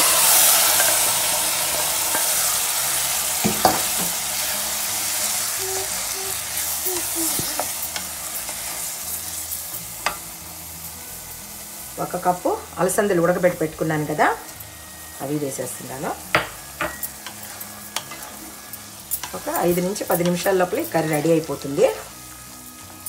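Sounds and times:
food sizzling in a hot pan: 0:00.0 - 0:23.0.

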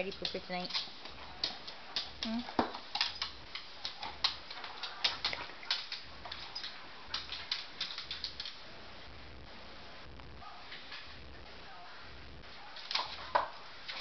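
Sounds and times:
dog claws tapping on hard floor: 0:00.0 - 0:08.6, 0:12.8 - 0:14.0.

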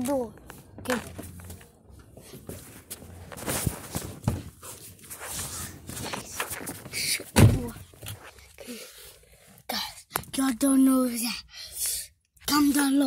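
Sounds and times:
footsteps: 0:00.0 - 0:08.4
cloth rustling: 0:01.1 - 0:07.2.

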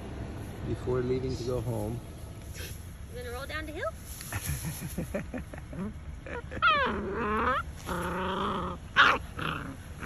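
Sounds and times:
puppy whining growl: 0:05.7 - 0:10.0
puppy whining yelp: 0:06.3 - 0:09.4.

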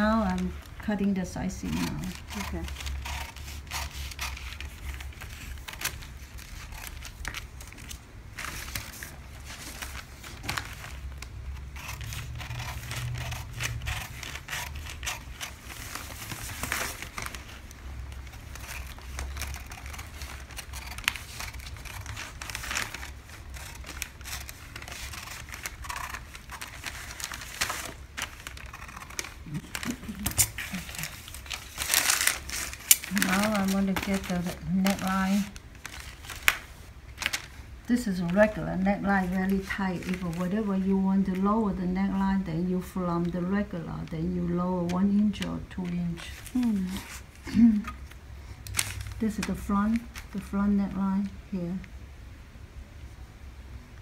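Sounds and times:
paper rustling: 0:00.0 - 0:41.5, 0:42.8 - 0:50.6
paper crinkling: 0:00.0 - 0:41.7, 0:42.8 - 0:50.6
shears snipping paper: 0:01.6 - 0:08.0, 0:11.6 - 0:37.4.

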